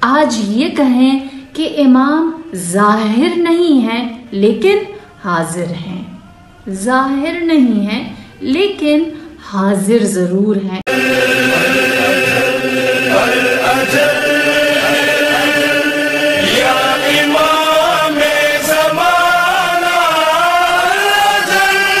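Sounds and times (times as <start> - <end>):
chanted singing: 10.9 - 22.0.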